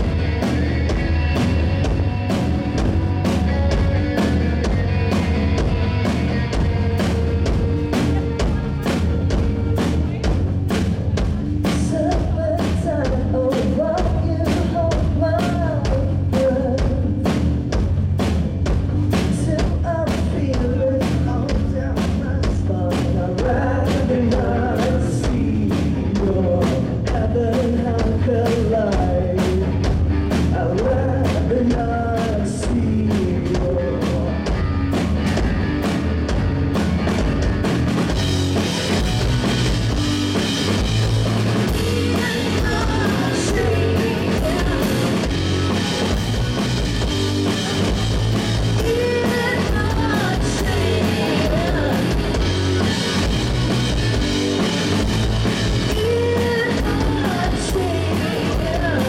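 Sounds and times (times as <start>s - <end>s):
live rock band playing: 0.0s - 59.0s.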